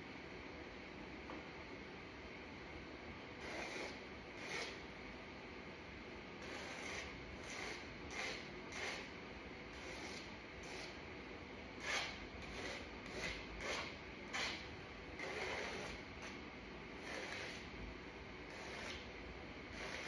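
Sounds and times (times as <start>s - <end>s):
paintbrush scraping on canvas: 18.5s - 19.1s.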